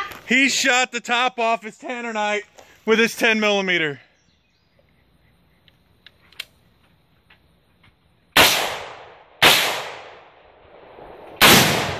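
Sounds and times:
gunshots with echo: 8.4s - 10.3s, 11.4s - 11.9s.

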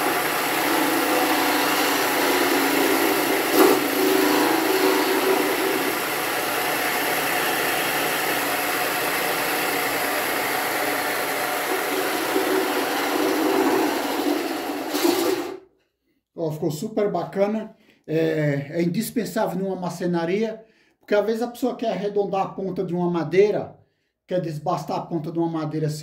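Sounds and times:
electric motor hum: 0.0s - 15.6s.

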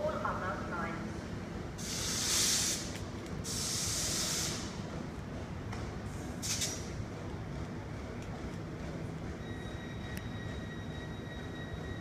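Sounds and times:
compressed air hissing from train: 1.8s - 4.9s, 6.1s - 7.0s.

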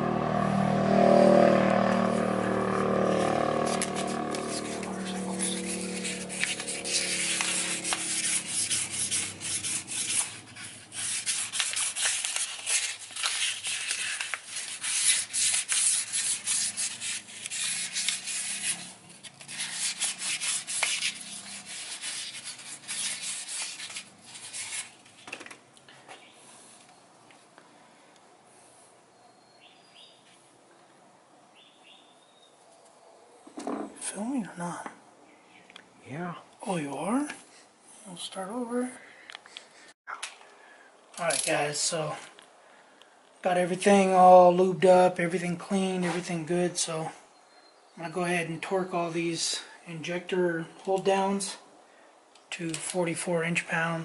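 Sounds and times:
cloth rubbing on metal part: 2.9s - 25.0s.

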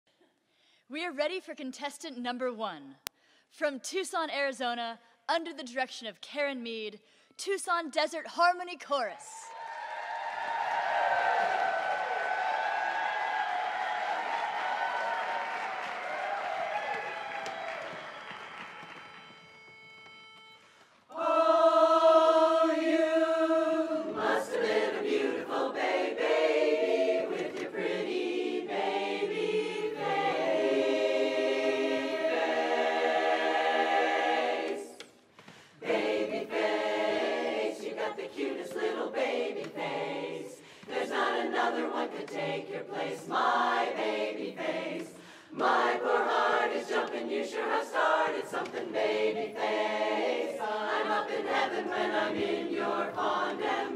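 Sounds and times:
women's chorus singing a cappella: 21.1s - 35.2s, 35.8s - 53.9s.

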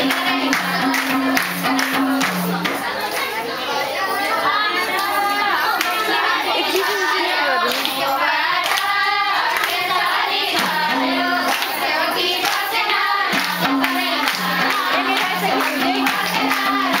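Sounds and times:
group singing folk song: 0.0s - 3.3s, 4.5s - 17.0s
hand clapping: 0.0s - 3.3s, 7.6s - 10.0s, 10.6s - 17.0s.

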